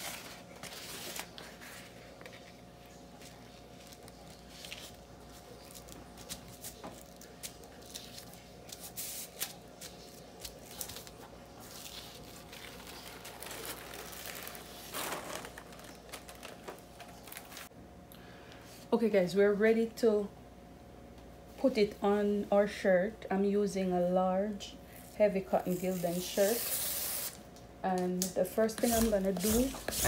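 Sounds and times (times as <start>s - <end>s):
paper rustling and rubbing: 0.0s - 17.7s, 28.8s - 30.0s.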